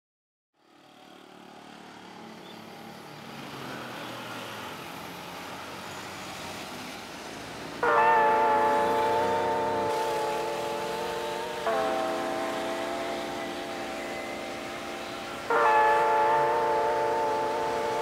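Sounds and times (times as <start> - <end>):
road traffic noise: 0.6 - 18.0
sustained musical chord: 7.8 - 18.0.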